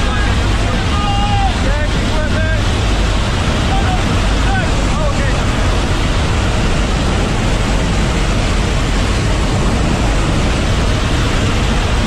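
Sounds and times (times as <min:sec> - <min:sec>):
aircraft engine noise: 0:00.0 - 0:12.0.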